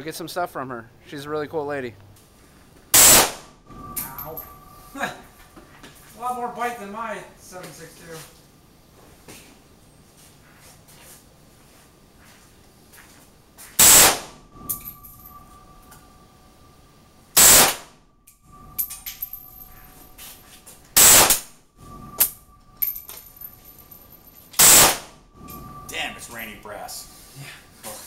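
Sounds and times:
rifle shots with echo: 3.0s - 3.4s, 24.6s - 25.1s.

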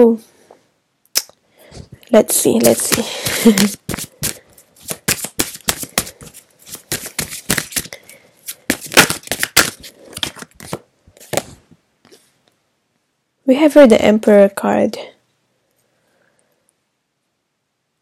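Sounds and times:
cards shuffling snaps and flicks: 2.6s - 11.6s.

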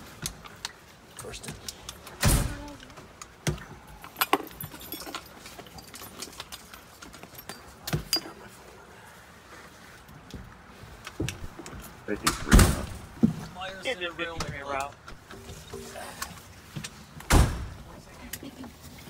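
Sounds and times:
metallic gear clinking and rattling: 3.9s - 8.4s.

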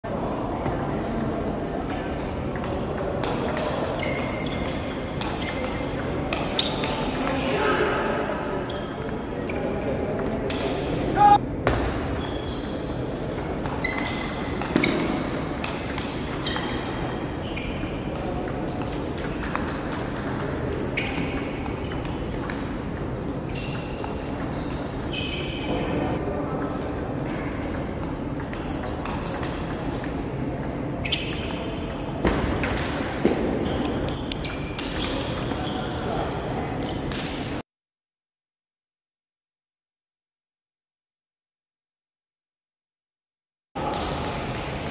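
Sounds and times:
ball bouncing on table: 13.6s - 17.2s, 32.2s - 35.6s
table tennis ball hits: 13.6s - 17.2s.

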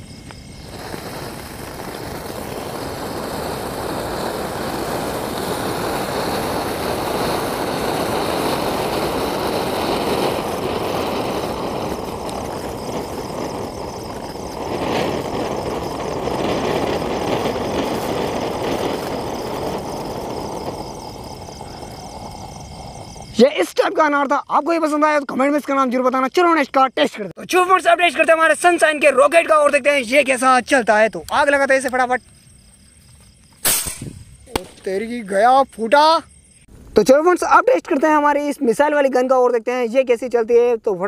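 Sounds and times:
firework fountain hissing: 0.0s - 24.2s, 27.4s - 37.0s
sharp crack: 0.2s - 22.3s, 33.6s - 35.2s.

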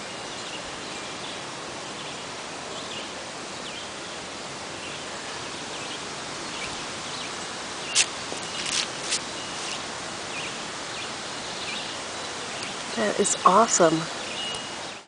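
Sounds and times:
outdoor background hiss: 0.0s - 15.0s
faint high chirps: 14.3s - 15.0s.

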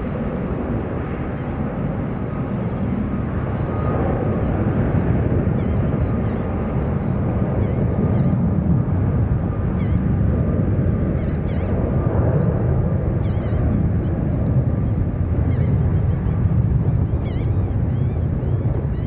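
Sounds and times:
distant jet engines rumbling: 0.0s - 19.0s.

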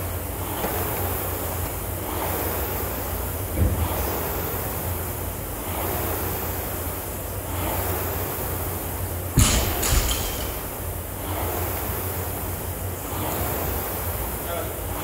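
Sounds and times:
rowing machine flywheel whooshing: 0.0s - 15.0s
short thump: 9.4s - 10.9s.

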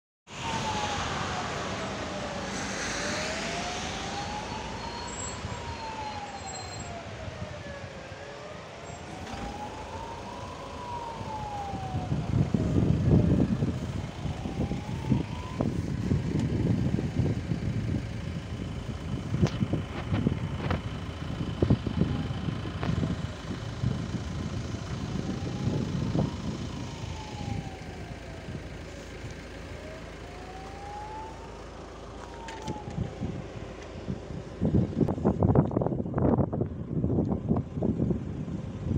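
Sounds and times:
car passing on wet road: 0.3s - 17.0s
siren-like warning tone: 0.3s - 33.8s.

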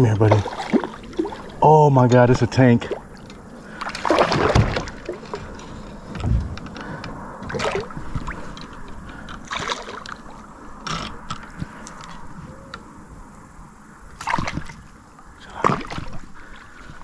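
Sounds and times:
fish splashing at surface: 3.8s - 5.2s
low thump: 6.2s - 6.8s.

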